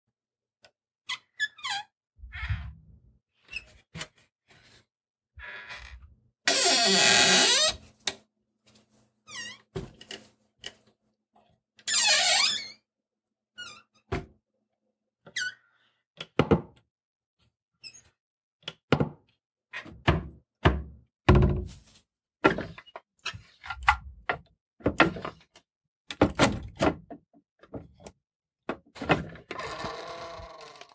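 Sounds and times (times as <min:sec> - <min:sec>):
door creaking: 0:01.1 - 0:02.8, 0:05.4 - 0:07.8, 0:11.8 - 0:12.8, 0:29.3 - 0:30.9
door squeak: 0:05.4 - 0:07.8, 0:11.9 - 0:12.8, 0:29.5 - 0:30.9.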